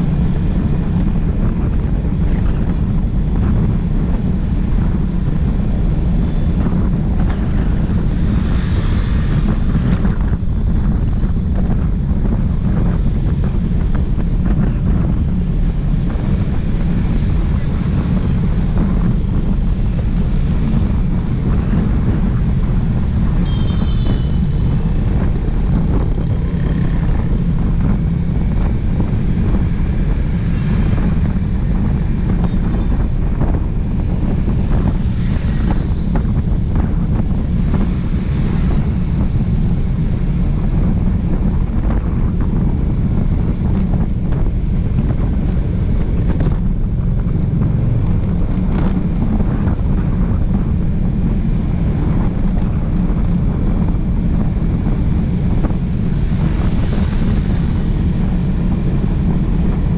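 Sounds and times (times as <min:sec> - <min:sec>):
wind rushing over microphone: 0:00.0 - 0:59.9
high beep: 0:23.4 - 0:24.2.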